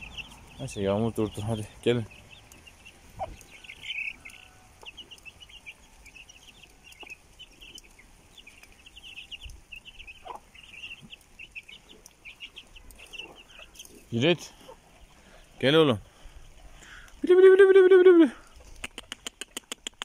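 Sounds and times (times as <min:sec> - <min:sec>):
chicks peeping: 0:00.0 - 0:20.0
hen clucking softly: 0:03.1 - 0:05.8, 0:10.1 - 0:13.8.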